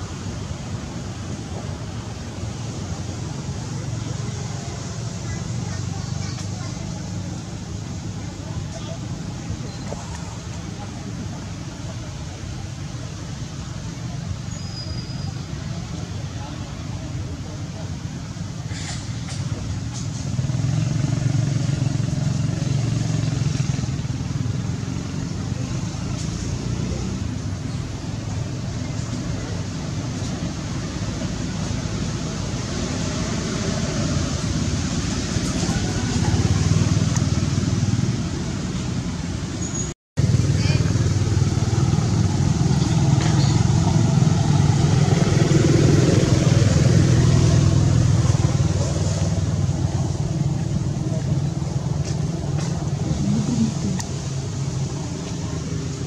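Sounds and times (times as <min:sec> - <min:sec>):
vehicle engine passing: 0:40.2 - 0:56.0.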